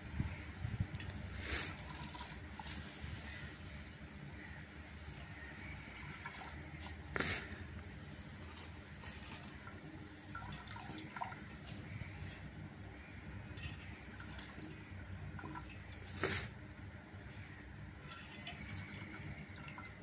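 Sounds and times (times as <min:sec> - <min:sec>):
water dripping and splashing: 0:08.4 - 0:12.5, 0:13.5 - 0:16.3, 0:18.0 - 0:20.0.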